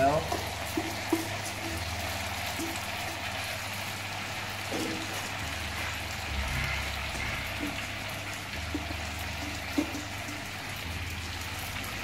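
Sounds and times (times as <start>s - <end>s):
vegetables sizzling in a pan: 0.0s - 12.0s.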